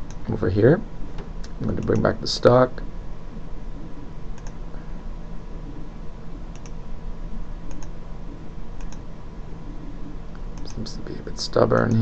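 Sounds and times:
low hum and hiss: 0:00.0 - 0:12.0
computer mouse clicking: 0:01.4 - 0:02.1, 0:04.3 - 0:04.6, 0:06.5 - 0:06.8, 0:07.6 - 0:08.0, 0:08.8 - 0:09.1, 0:10.4 - 0:10.9.

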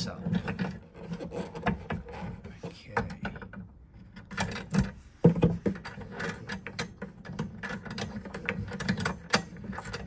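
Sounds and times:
hose fitting clicking and knocking: 0:03.0 - 0:10.0.

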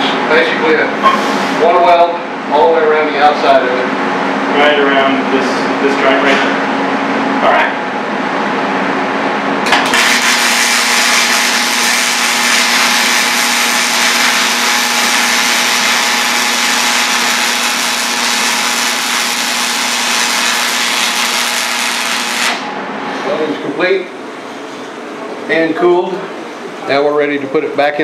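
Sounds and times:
welding arc hissing: 0:09.7 - 0:22.7.

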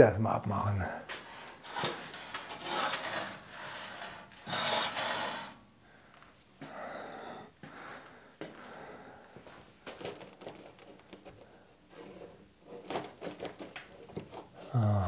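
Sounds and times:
rubber wheel scraping on axle: 0:01.1 - 0:05.6.

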